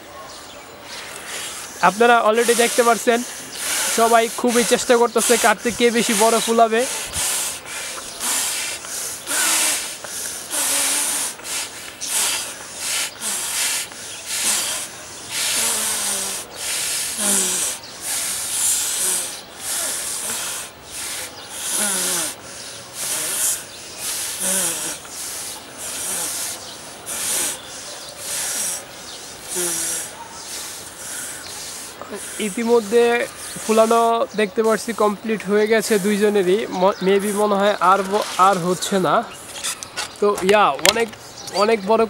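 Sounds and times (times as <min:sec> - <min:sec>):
breathy puffs into rubber: 0:00.9 - 0:40.2.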